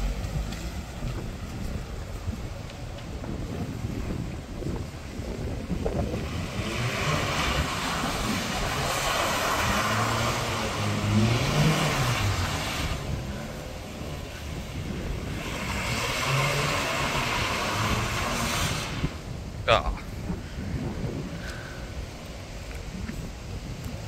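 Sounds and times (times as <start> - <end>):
tyres hissing on wet road: 3.8 - 19.8
car engine revving: 4.6 - 19.8.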